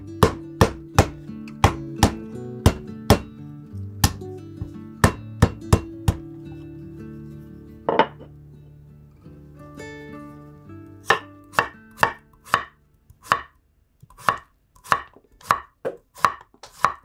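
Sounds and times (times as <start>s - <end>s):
soft background music: 0.0s - 13.4s.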